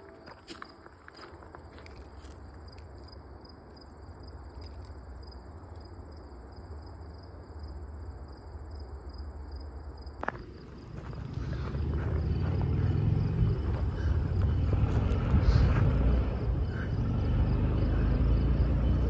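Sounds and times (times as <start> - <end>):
insects trilling: 0.0 - 19.0
pulsing insect chirp: 1.6 - 19.0
low rumble: 10.3 - 19.0.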